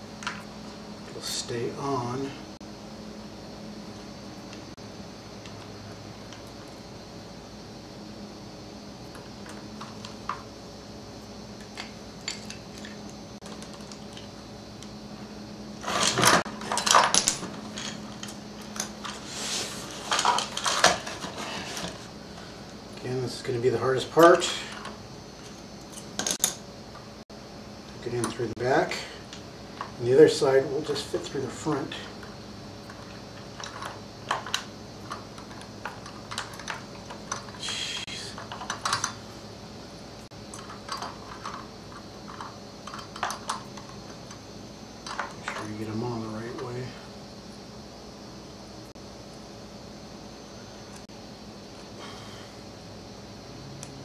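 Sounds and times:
metal parts rattling: 0:15.8 - 0:19.2, 0:20.0 - 0:22.0, 0:32.9 - 0:39.2, 0:40.5 - 0:43.9.

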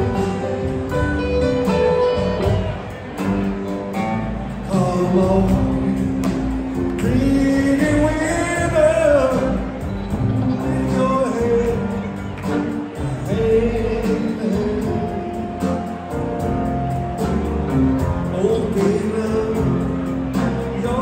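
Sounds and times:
live rock band playing: 0:00.0 - 0:21.0
person singing: 0:04.5 - 0:17.1, 0:17.7 - 0:21.0.

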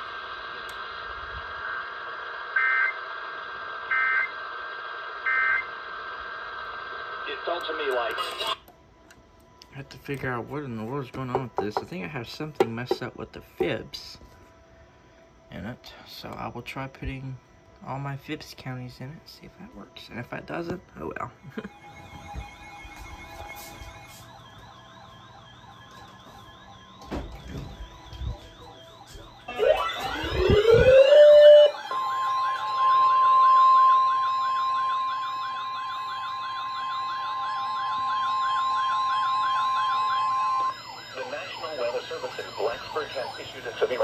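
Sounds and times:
siren tones rising in pitch: 0:00.0 - 0:03.1, 0:03.7 - 0:04.4, 0:05.0 - 0:06.3, 0:21.4 - 0:44.0
steady warning alarm tone: 0:00.0 - 0:05.9, 0:07.2 - 0:44.0
faint wavering siren-like tone: 0:19.1 - 0:44.0.

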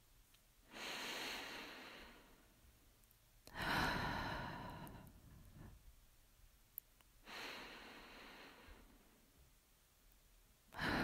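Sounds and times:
woman breathing heavily: 0:00.7 - 0:02.6, 0:03.5 - 0:05.9, 0:07.2 - 0:09.2, 0:10.7 - 0:11.0.

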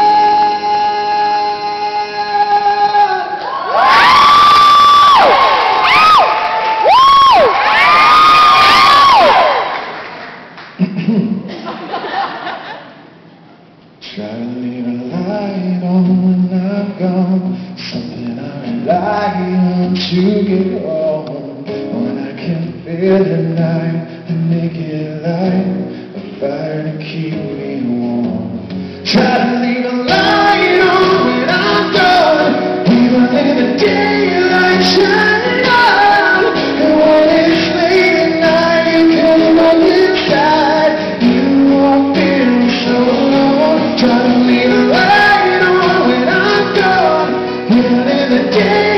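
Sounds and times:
acoustic guitars playing: 0:00.0 - 0:03.4, 0:14.2 - 0:48.9
man singing: 0:00.0 - 0:03.6, 0:14.0 - 0:48.9.

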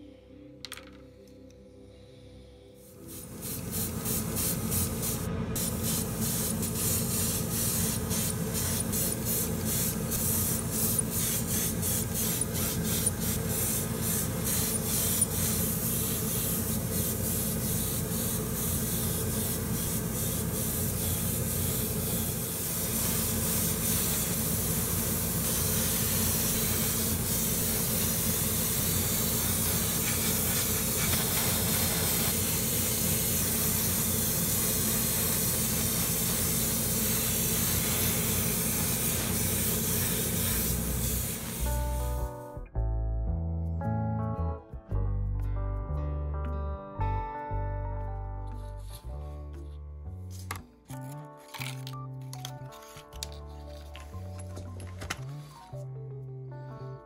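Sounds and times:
steady low hum: 0:01.8 - 0:42.4
airbrush spraying hiss: 0:02.8 - 0:42.4.

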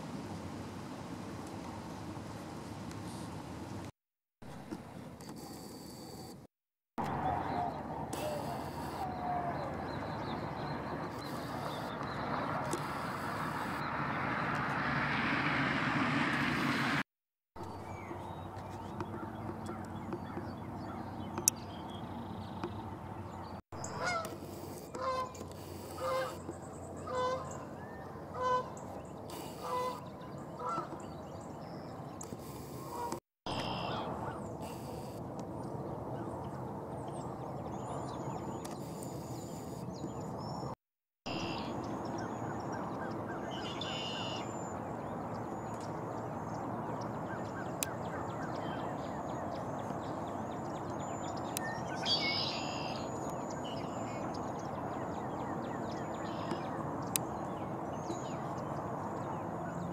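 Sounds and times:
outdoor background noise: 0:00.0 - 0:59.9
geese honking: 0:23.8 - 0:26.4, 0:27.0 - 0:27.6, 0:28.3 - 0:28.8, 0:29.4 - 0:30.0, 0:30.6 - 0:31.0
faint high bird chirps: 0:33.5 - 0:35.2, 0:41.3 - 0:44.8, 0:47.3 - 0:54.5.

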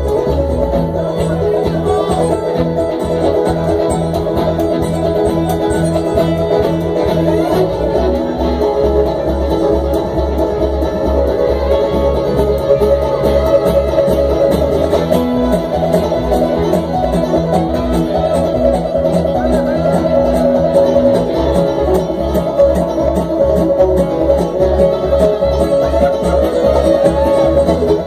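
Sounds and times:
acoustic guitar: 0:00.0 - 0:28.0
fiddle: 0:00.0 - 0:28.0
upright bass: 0:00.0 - 0:28.0.

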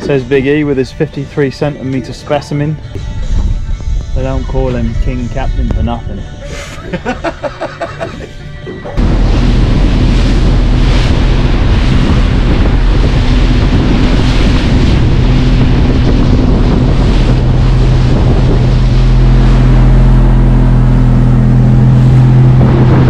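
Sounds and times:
outboard engine running: 0:08.9 - 0:23.0
water rushing past boat: 0:08.9 - 0:23.0
wind buffeting microphone: 0:09.0 - 0:23.0.

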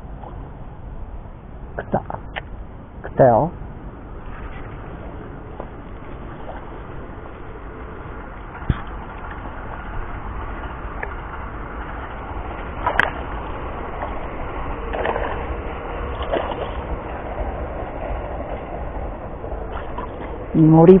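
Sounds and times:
low rumble: 0:00.0 - 0:21.0
water splashing: 0:04.1 - 0:18.0.

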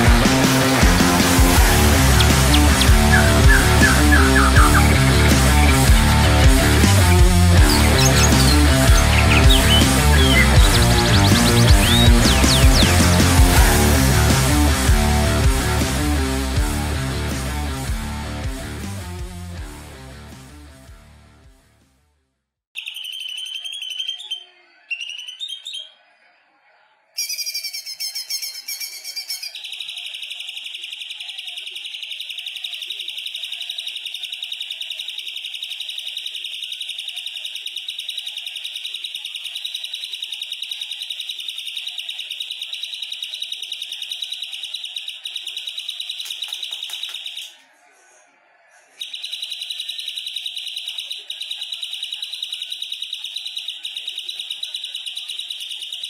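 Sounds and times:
bird singing high trill: 0:01.6 - 0:05.8, 0:07.0 - 0:13.2, 0:22.8 - 0:26.0, 0:27.2 - 0:47.6.

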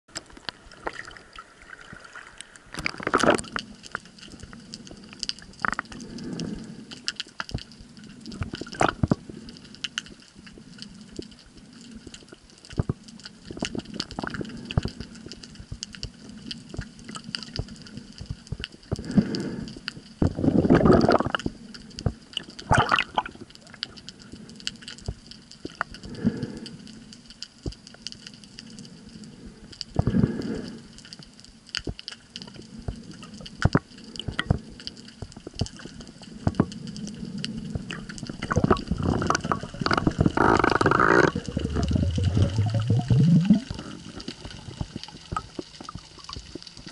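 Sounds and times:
underwater clicks and knocks: 0:02.7 - 0:03.7, 0:33.6 - 0:34.6, 0:36.4 - 0:36.8, 0:37.7 - 0:46.9
rush of moving water: 0:38.0 - 0:46.9.

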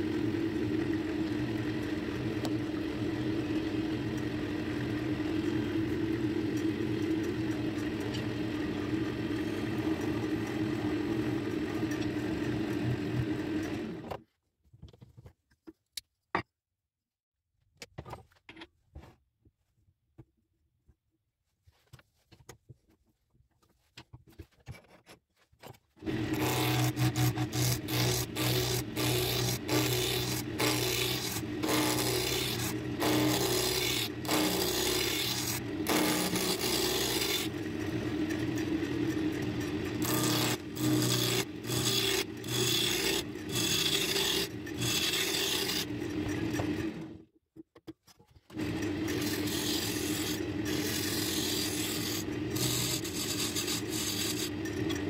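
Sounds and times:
wood lathe humming: 0:00.0 - 0:14.1, 0:26.0 - 0:47.2, 0:48.5 - 0:55.0
gouge cutting wood on lathe: 0:26.0 - 0:47.2, 0:48.6 - 0:55.0.

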